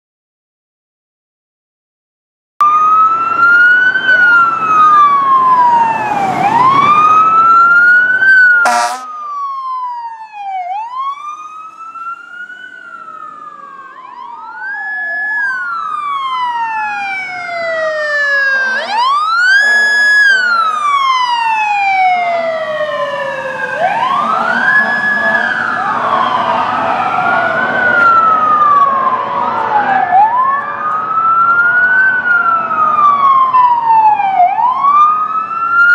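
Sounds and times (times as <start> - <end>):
fire truck sirens wailing: 2.6 - 35.9
air horn blasts: 8.6 - 9.2, 18.6 - 20.8, 24.3 - 25.6.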